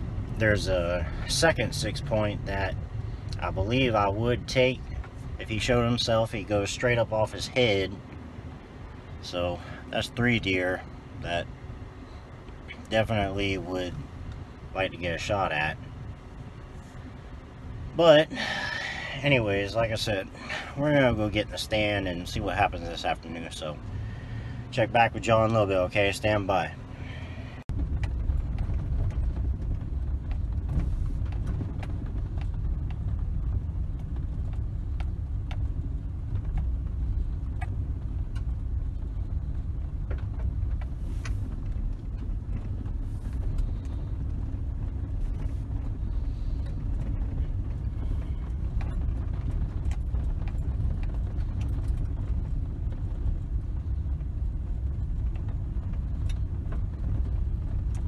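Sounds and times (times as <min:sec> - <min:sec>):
vehicle engine and road rumble: 0:00.0 - 0:58.0
light clicks and rattles: 0:27.7 - 0:58.0.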